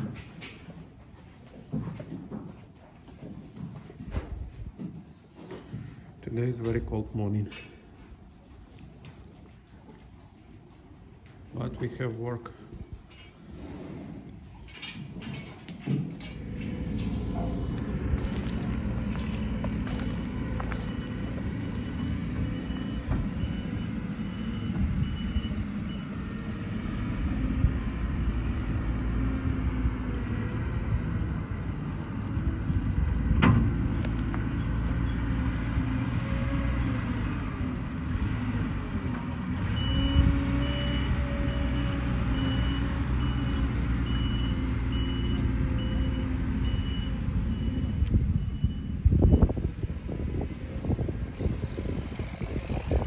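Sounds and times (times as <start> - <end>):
diesel engine running: 16.2 - 53.0
reversing alarm short beeps: 19.3 - 26.2, 39.7 - 49.5.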